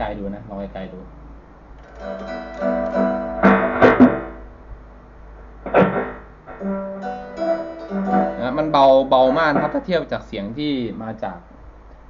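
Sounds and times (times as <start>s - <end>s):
electric guitar through amplifier: 1.7s - 10.1s.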